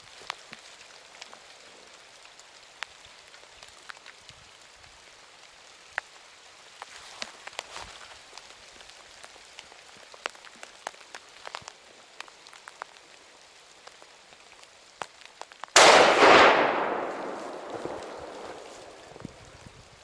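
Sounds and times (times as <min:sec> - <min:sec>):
faint ticks and crackles: 0:00.0 - 0:20.0
rifle shot echoing: 0:15.8 - 0:19.2.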